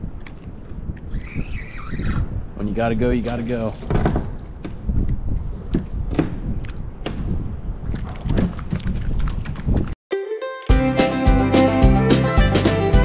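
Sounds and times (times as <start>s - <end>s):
wind buffeting microphone: 0.0s - 10.0s
knocks and thumps: 3.7s - 5.0s.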